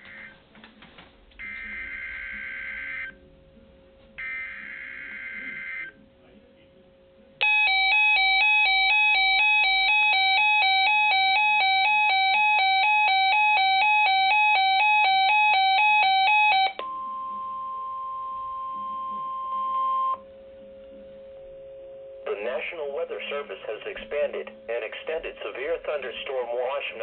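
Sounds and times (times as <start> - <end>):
electronic alarm beeping: 0.0 - 0.4, 1.4 - 3.2, 4.2 - 6.0, 7.4 - 20.3
steady warning tone: 0.0 - 0.5, 1.4 - 3.5, 4.2 - 6.0.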